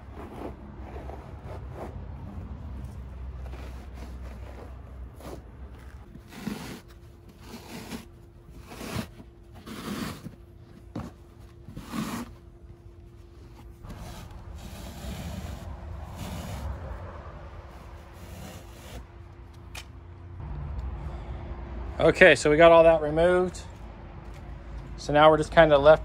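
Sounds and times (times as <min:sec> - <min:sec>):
felt padding ripping: 0:03.5 - 0:10.3, 0:13.8 - 0:16.8.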